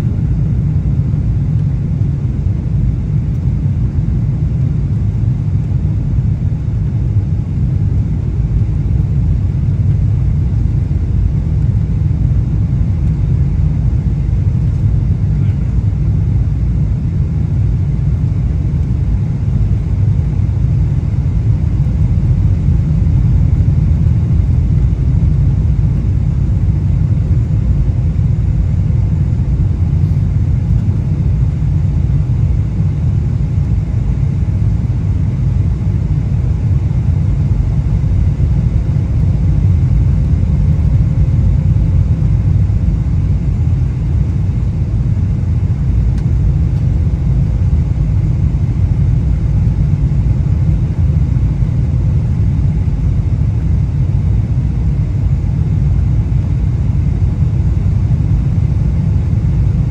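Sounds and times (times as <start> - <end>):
airliner cabin rumble: 0.0 - 59.9
faint steady hum: 0.0 - 59.9.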